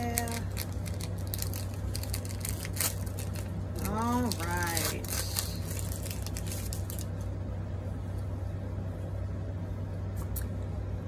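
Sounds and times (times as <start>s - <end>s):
foil wrapper crinkling: 0.0s - 7.3s
steady low hum: 0.0s - 11.0s.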